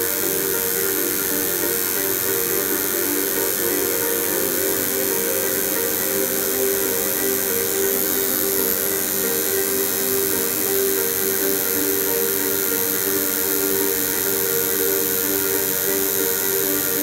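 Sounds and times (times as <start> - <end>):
tattoo machine buzzing: 0.0 - 17.0.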